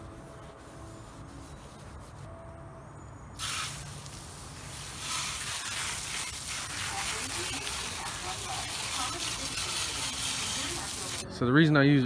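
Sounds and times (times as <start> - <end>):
hose spray hissing: 3.4 - 11.2.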